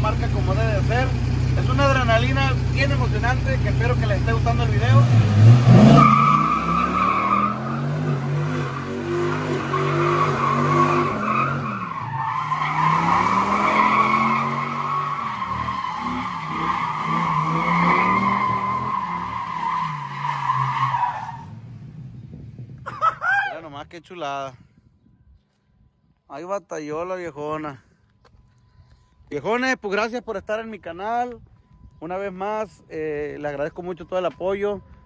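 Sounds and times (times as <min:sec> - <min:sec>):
truck engine revving: 0:00.0 - 0:22.0.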